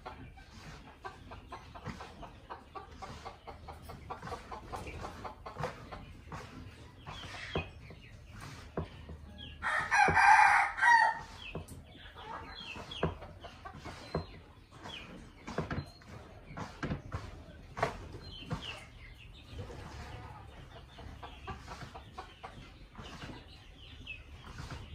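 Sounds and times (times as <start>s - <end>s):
birds clucking: 0.0s - 24.9s
young cockerel crowing: 9.6s - 11.2s.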